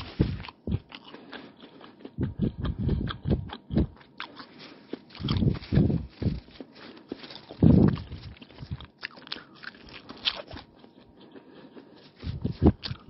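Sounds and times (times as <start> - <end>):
close chewing: 0.0 - 13.0
paper wrapper crinkling: 4.5 - 8.7.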